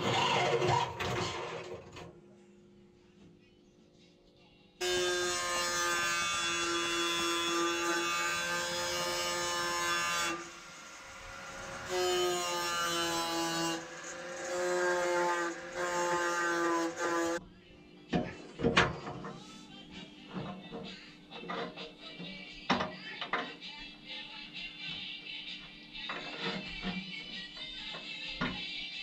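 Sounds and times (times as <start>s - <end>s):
power tool motor whining: 8.5s - 17.4s.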